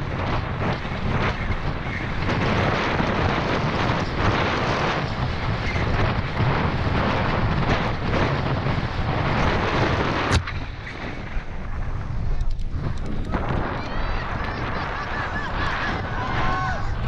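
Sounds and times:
bike rattling: 0.0s - 17.0s
wind rushing over microphone: 0.0s - 17.0s.

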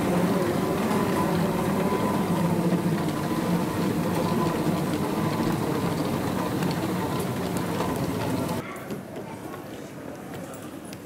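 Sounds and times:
moving walkway mechanical hum: 0.0s - 9.8s.

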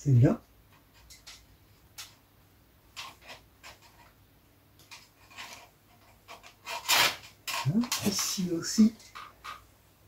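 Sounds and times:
scrapes and clicks of tool on wires: 0.7s - 2.2s, 2.9s - 4.2s, 4.8s - 9.7s.

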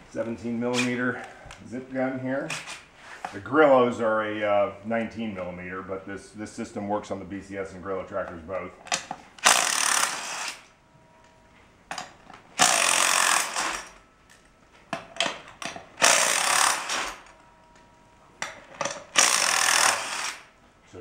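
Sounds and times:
impact wrench hammering: 8.9s - 10.7s, 11.9s - 14.0s, 14.9s - 17.4s, 18.4s - 20.5s.

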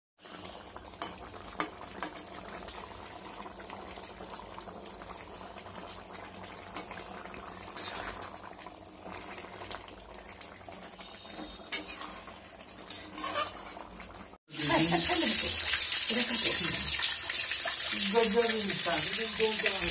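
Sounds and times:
curry simmering: 0.2s - 19.9s
metal spatula scraping a pan: 11.1s - 14.0s.

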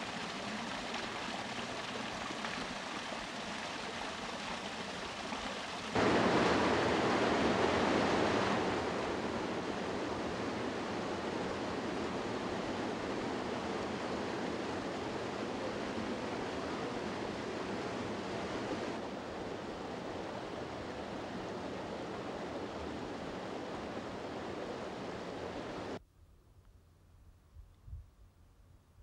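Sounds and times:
waterfall rushing water: 0.0s - 26.0s.

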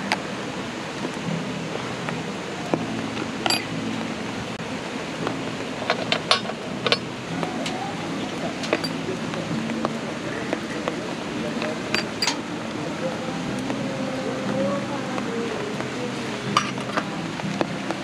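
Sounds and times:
steady hiss: 0.0s - 18.0s
metal tin clinking: 3.5s - 3.7s, 5.9s - 7.0s, 11.9s - 12.4s.

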